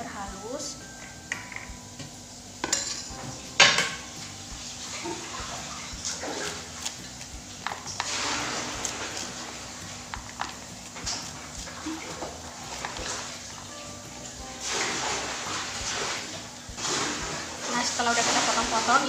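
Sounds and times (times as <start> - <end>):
bowls knocking on a tabletop: 1.0 - 4.1
knife scraping corn kernels: 6.2 - 13.3.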